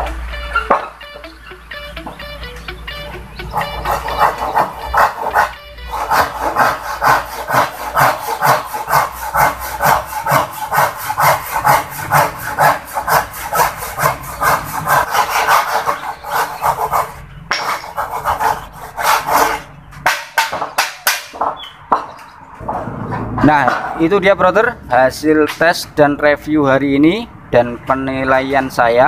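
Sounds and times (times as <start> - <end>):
hand saw cutting wood: 3.5 - 21.3.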